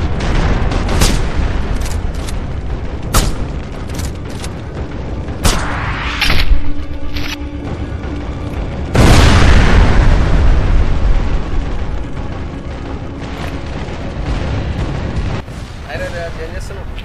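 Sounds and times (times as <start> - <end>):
video game gunshots: 0.0 - 6.6
game music: 0.0 - 17.0
steady game rumble: 0.0 - 17.0.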